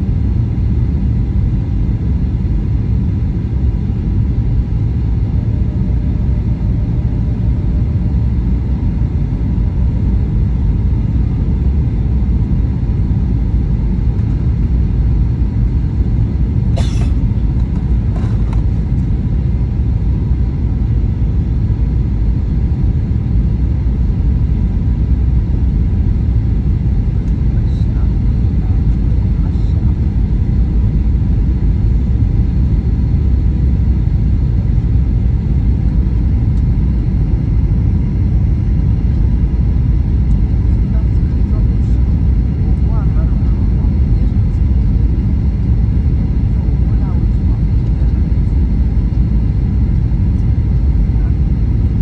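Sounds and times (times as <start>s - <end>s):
airplane cabin rumble: 0.0s - 52.0s.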